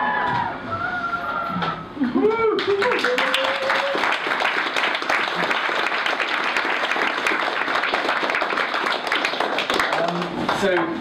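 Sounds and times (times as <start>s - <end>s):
audience applauding: 2.6s - 10.9s.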